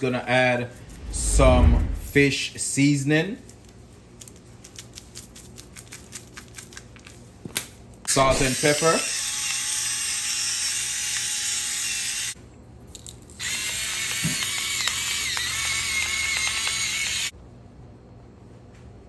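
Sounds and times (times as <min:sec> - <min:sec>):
twist grinder grinding: 0:13.3 - 0:17.3.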